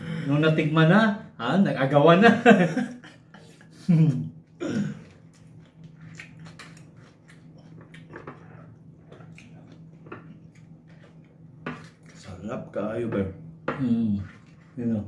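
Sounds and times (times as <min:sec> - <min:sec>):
steady low hum: 0:00.0 - 0:15.0
quiet chewing: 0:04.5 - 0:12.4.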